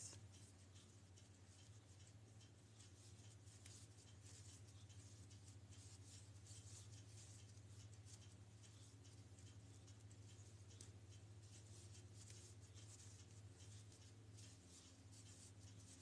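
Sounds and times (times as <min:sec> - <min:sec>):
low steady hum: 0:00.0 - 0:16.0
yarn scratching over crochet hook: 0:11.5 - 0:16.0.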